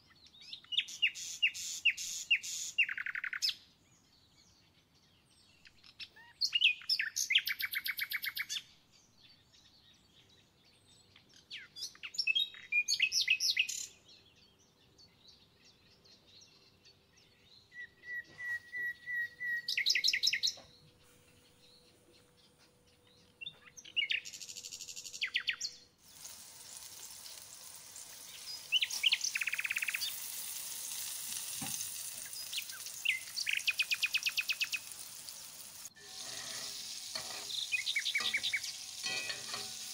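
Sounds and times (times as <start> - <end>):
songbird trilling and chirping: 0.1 - 25.9, 28.3 - 30.3, 32.2 - 35.5, 36.5 - 39.8
meat sizzling in a frying pan: 26.0 - 39.9.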